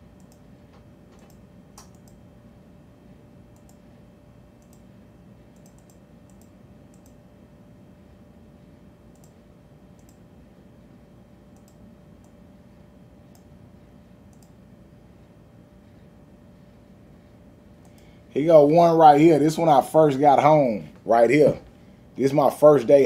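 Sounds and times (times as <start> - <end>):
faint steady hum: 0.0 - 23.0
computer mouse clicks: 0.2 - 2.2, 3.5 - 3.8, 4.6 - 4.9, 5.6 - 7.2, 9.1 - 9.4, 10.0 - 10.2, 11.5 - 12.4, 14.3 - 14.6, 17.8 - 18.1.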